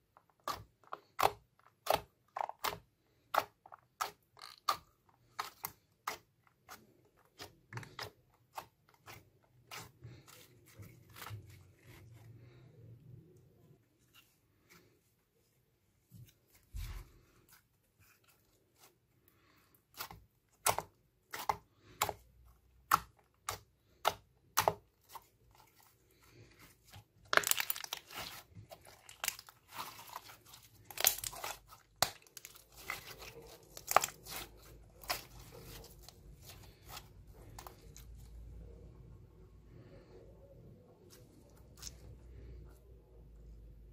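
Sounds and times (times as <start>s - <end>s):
slime popping and crackling: 27.2s - 38.1s.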